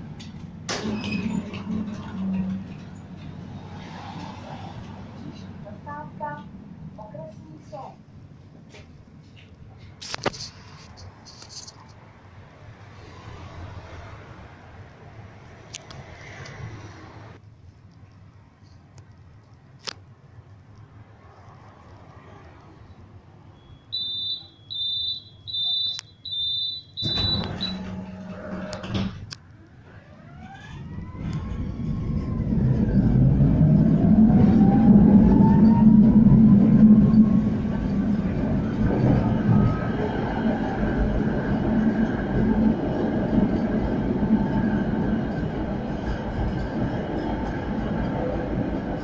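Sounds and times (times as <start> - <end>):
tram wheels rumbling on rails: 0.0 - 10.2, 27.0 - 49.0
doors closing: 0.2 - 3.4, 24.0 - 34.7
tram door warning beeps: 23.4 - 29.1.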